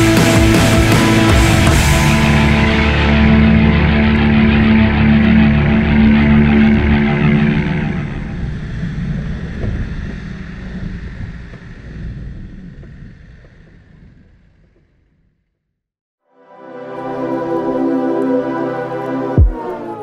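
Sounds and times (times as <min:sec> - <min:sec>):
background music: 0:00.0 - 0:08.0, 0:16.2 - 0:20.0
vehicle engine driving: 0:00.0 - 0:15.8, 0:17.0 - 0:20.0.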